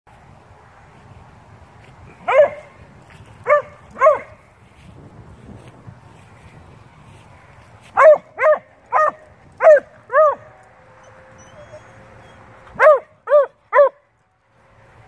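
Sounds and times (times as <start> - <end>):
dog barking: 2.2 - 2.7, 3.4 - 4.4, 8.0 - 10.5, 12.8 - 14.0.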